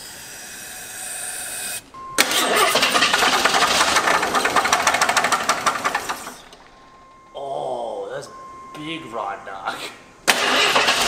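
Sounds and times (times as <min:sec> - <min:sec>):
engine running with loud knock: 0:02.2 - 0:06.6, 0:10.3 - 0:11.0.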